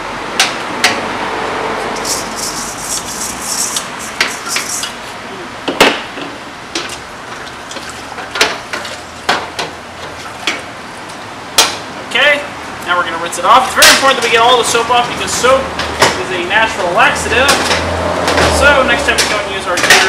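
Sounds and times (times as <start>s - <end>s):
brush scrubbing metal: 1.9s - 5.1s
metal colander clanking: 2.0s - 5.0s.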